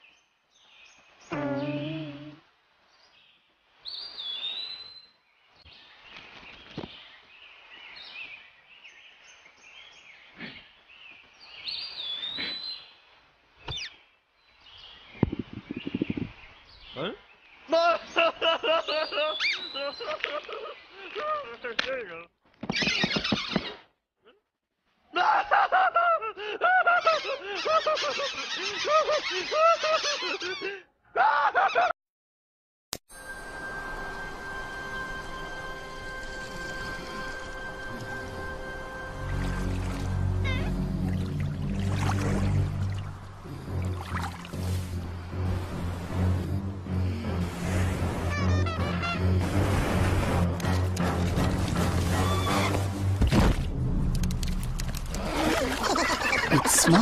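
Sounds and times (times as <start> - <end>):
soft outdoor hiss: 0.0 - 12.1, 33.2 - 40.0
cartoon bird honking laugh: 26.7 - 30.7.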